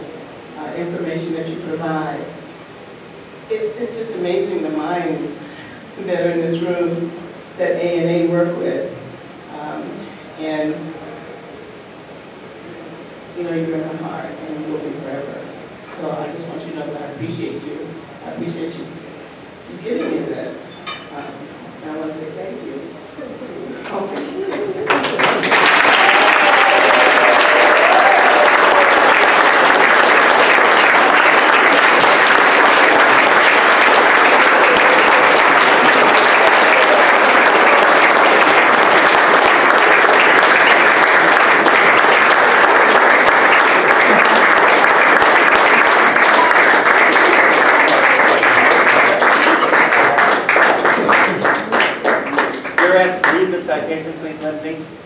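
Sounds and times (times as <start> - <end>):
crowd applauding: 23.9 - 53.8.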